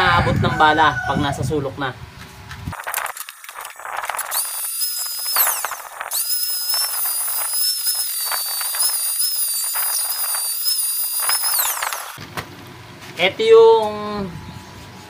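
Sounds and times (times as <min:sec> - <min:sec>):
angle grinder whine: 0:02.7 - 0:12.2
disc scraping metal: 0:02.9 - 0:12.2.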